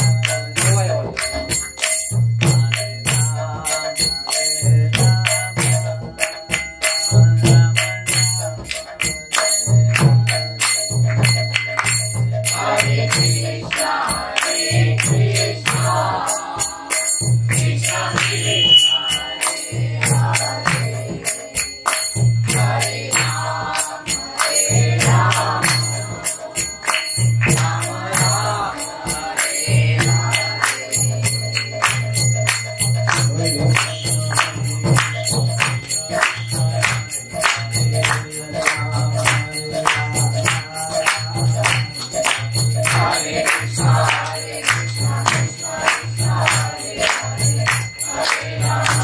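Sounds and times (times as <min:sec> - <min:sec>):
hand cymbals clashing: 0:00.0 - 0:49.0
voices singing: 0:12.4 - 0:32.2, 0:33.1 - 0:49.0.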